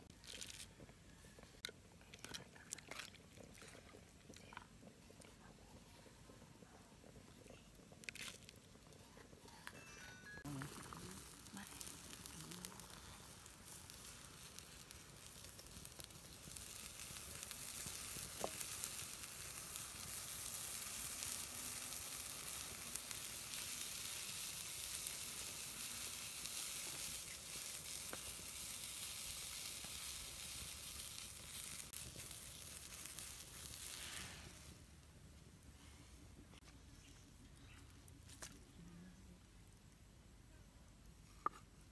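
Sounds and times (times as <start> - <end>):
pork sizzling in a frying pan: 10.4 - 35.2.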